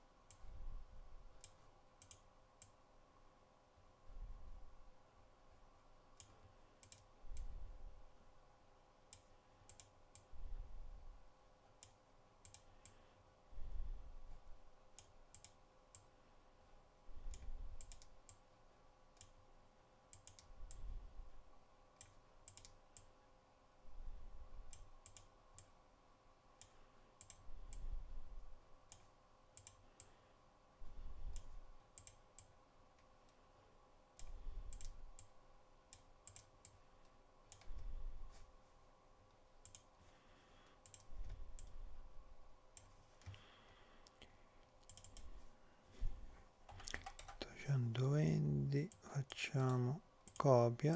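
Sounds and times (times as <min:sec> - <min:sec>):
faint steady hum: 0:00.0 - 0:50.9
computer mouse clicking: 0:00.2 - 0:00.6, 0:01.3 - 0:02.8, 0:06.1 - 0:07.7, 0:09.1 - 0:10.4, 0:11.7 - 0:13.1, 0:14.3 - 0:16.2, 0:17.2 - 0:18.5, 0:19.1 - 0:19.4, 0:20.1 - 0:21.1, 0:21.9 - 0:23.2, 0:24.6 - 0:25.8, 0:26.6 - 0:30.3, 0:30.9 - 0:33.4, 0:34.1 - 0:38.5, 0:39.3 - 0:42.0, 0:42.7 - 0:45.4, 0:46.6 - 0:47.4, 0:48.9 - 0:50.5.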